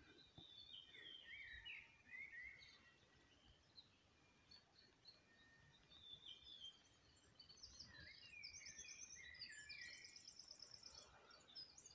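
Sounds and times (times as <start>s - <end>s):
songbirds chirping and trilling: 0.0s - 11.9s.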